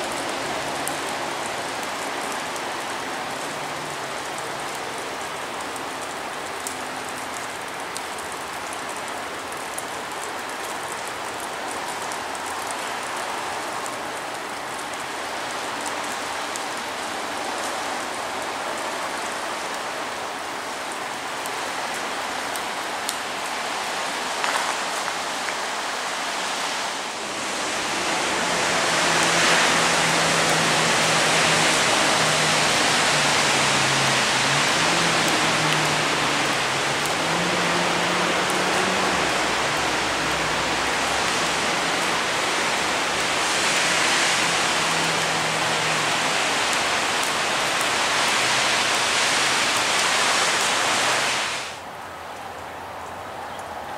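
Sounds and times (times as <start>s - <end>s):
raindrops ticking: 0.0s - 19.8s, 24.4s - 25.6s, 28.9s - 50.7s
rain falling: 0.0s - 53.9s.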